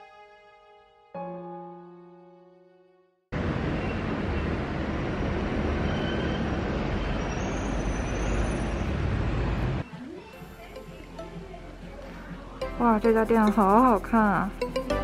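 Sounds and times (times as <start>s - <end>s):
train rumbling in motion: 3.4s - 9.8s
faint high squeals: 5.8s - 9.0s.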